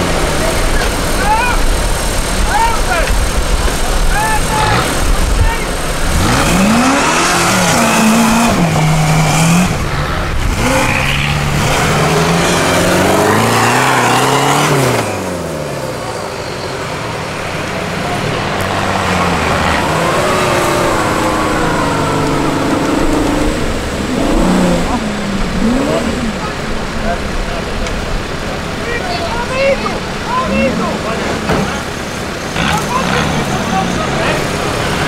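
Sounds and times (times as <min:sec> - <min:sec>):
off-road engines revving: 0:00.0 - 0:35.0.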